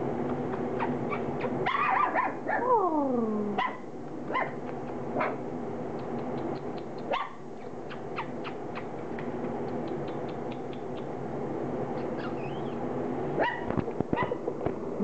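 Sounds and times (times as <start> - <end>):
steady low hum: 0.0 - 15.0
puppies squeaking and yipping: 0.4 - 2.3, 7.1 - 9.0, 12.0 - 12.8.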